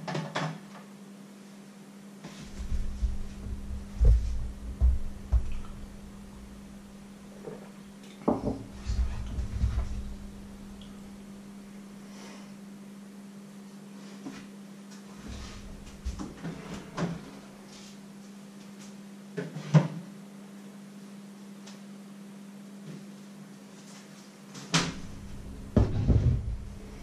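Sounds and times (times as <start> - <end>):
steady low hum: 2.3 - 13.7, 15.1 - 19.3, 24.7 - 27.0
knocks and clatters of items: 2.5 - 6.5, 24.8 - 27.0
refrigerator door opening and closing: 2.5 - 6.8, 8.4 - 11.8, 24.8 - 27.0.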